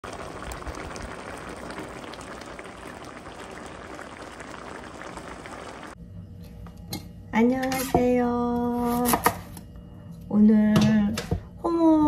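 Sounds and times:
sauce bubbling in a frying pan: 0:00.0 - 0:06.0.

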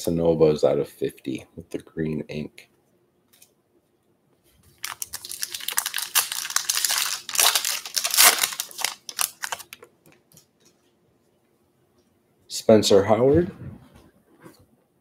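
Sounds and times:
foil wrapper crackling: 0:04.8 - 0:09.9.

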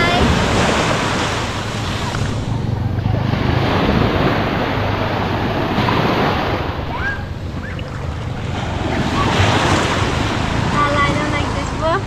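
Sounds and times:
sea waves breaking on sand: 0:00.0 - 0:12.0
wind buffeting microphone: 0:00.0 - 0:12.0.

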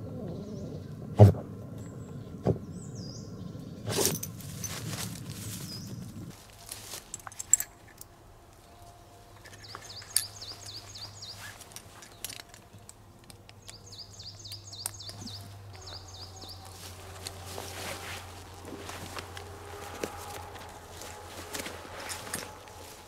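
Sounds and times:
small bird singing: 0:00.0 - 0:01.1, 0:01.8 - 0:04.2, 0:05.5 - 0:06.3, 0:08.7 - 0:12.5, 0:13.5 - 0:19.4
steady low drone: 0:00.0 - 0:23.0
gear clicking and rustling: 0:03.9 - 0:23.0.

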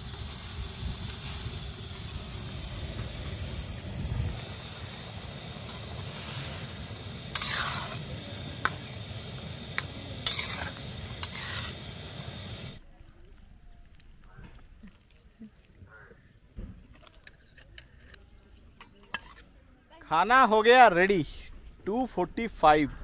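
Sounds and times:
steady low rumble: 0:00.0 - 0:12.8
metal ladle scraping pan: 0:05.6 - 0:08.9, 0:09.7 - 0:11.9.

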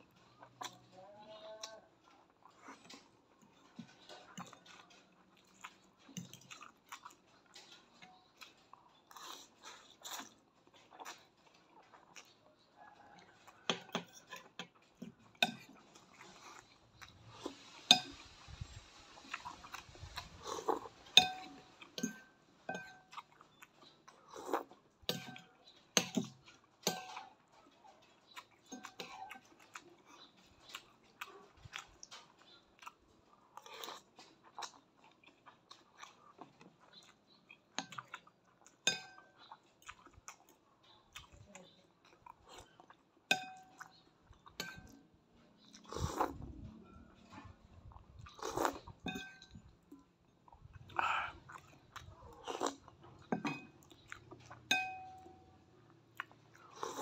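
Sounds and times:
person slurping and chewing: 0:02.2 - 0:12.3, 0:13.4 - 0:22.2, 0:23.1 - 0:25.3, 0:28.4 - 0:37.1, 0:45.7 - 0:46.6, 0:47.3 - 0:49.4, 0:50.5 - 0:54.6, 0:56.2 - 0:57.0
cutlery clinking on ceramic bowl: 0:13.7 - 0:15.8, 0:21.1 - 0:23.2, 0:25.1 - 0:27.3, 0:38.8 - 0:39.3, 0:43.3 - 0:43.9, 0:44.6 - 0:45.0, 0:49.0 - 0:49.7, 0:53.3 - 0:53.8, 0:54.6 - 0:55.4.

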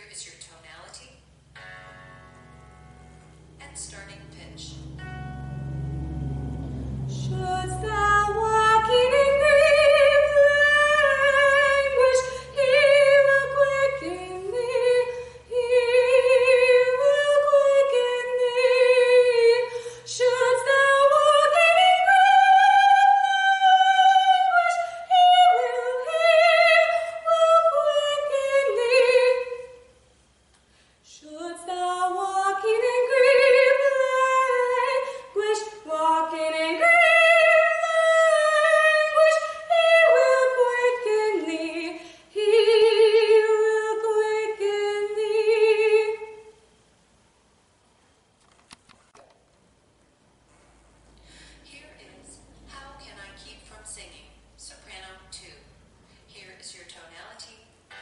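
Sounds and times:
young woman singing: 0:07.1 - 0:29.8, 0:31.1 - 0:46.4.

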